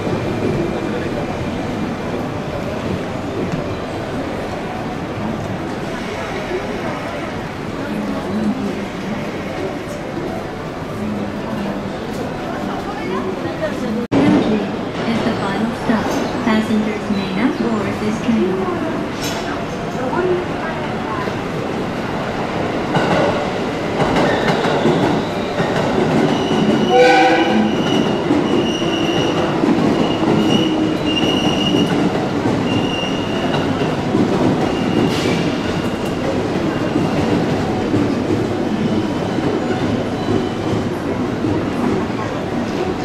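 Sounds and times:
train wheels squealing: 24.2s - 25.6s, 26.2s - 27.0s, 27.6s - 31.9s, 32.6s - 33.8s, 34.6s - 36.2s
train horn toot: 26.9s - 27.8s.

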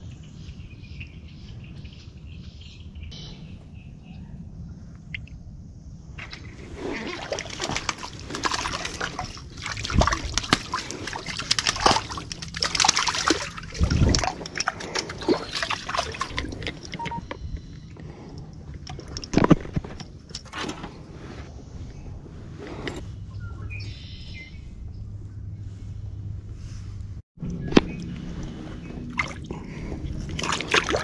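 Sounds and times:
water splashing and sloshing: 6.1s - 21.5s, 27.6s - 31.0s.

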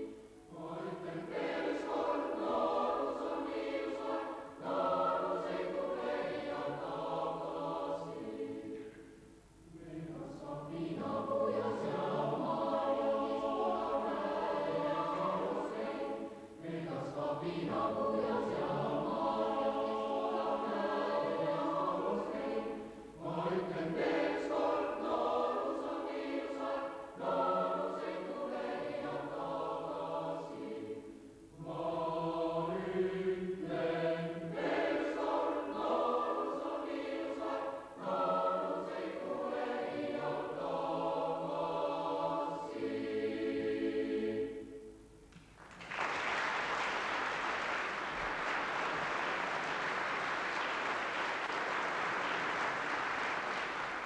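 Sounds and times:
boys choir singing a cappella: 0.0s - 9.1s, 9.7s - 45.0s
audience applauding: 45.6s - 54.0s.

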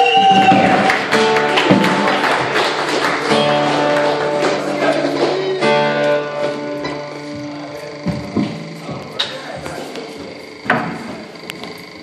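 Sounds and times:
live band through a pa: 0.0s - 8.8s
guitars strumming chords: 0.3s - 9.7s.

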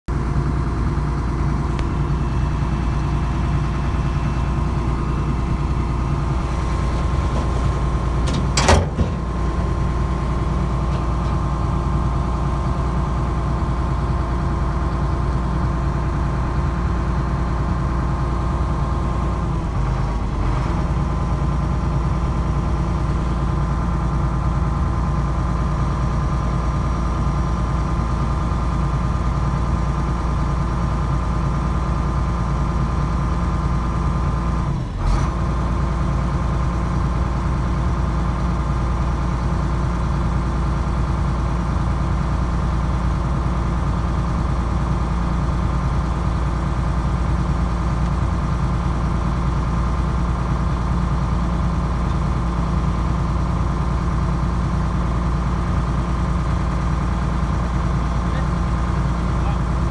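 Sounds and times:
excavator diesel engine running: 0.1s - 59.9s
sharp metallic clank: 8.1s - 9.3s.

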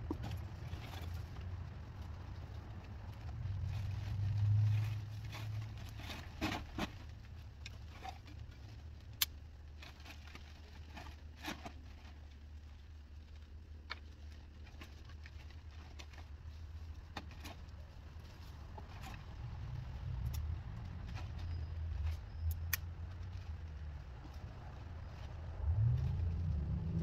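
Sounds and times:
low rumble: 19.2s - 27.0s.

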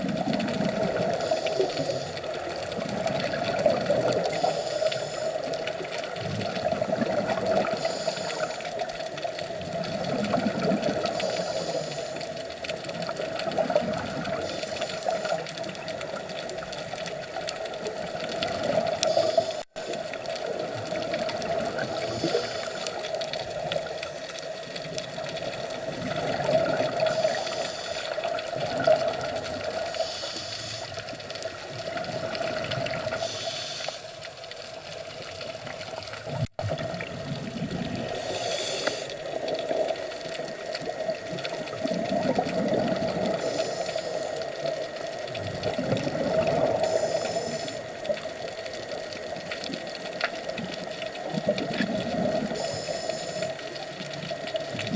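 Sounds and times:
muffled underwater wash: 0.0s - 54.9s
bursts of hiss: 19.0s - 20.0s, 27.0s - 28.2s, 29.7s - 31.2s, 33.1s - 34.3s, 38.2s - 39.2s.

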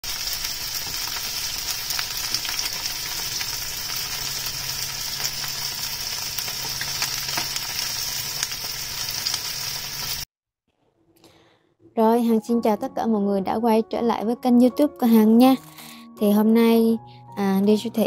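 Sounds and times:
fish frying in oil: 0.0s - 10.3s.

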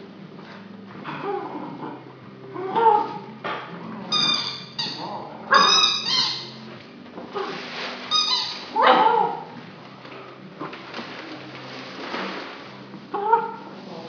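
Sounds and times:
squeaky dog toy squeaking: 4.1s - 6.7s, 8.1s - 9.5s.

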